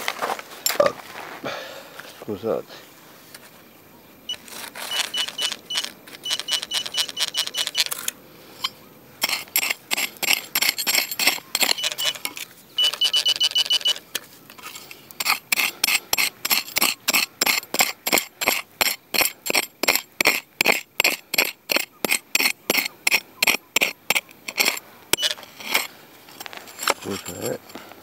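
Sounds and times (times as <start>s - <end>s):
metal detector beeping: 4.3s - 8.8s, 10.3s - 14.2s, 21.7s - 25.9s.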